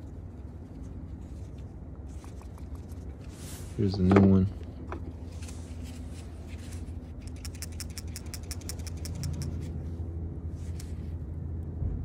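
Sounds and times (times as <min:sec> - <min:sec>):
steady low hum: 0:00.0 - 0:12.0
valve rattling with light clicks: 0:07.2 - 0:09.6.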